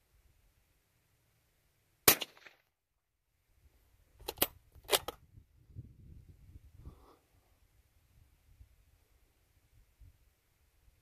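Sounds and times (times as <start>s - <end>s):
suppressed rifle shot: 2.0s - 2.6s
rifle bolt metallic clicks: 4.2s - 5.2s.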